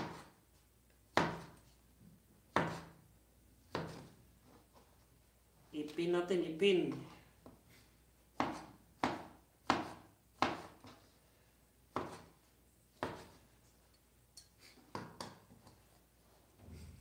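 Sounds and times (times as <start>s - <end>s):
cleaver chopping on cutting board: 0.0s - 0.3s, 1.1s - 1.6s, 2.5s - 3.0s, 3.7s - 4.1s, 8.4s - 10.8s, 11.9s - 12.3s, 13.0s - 13.4s.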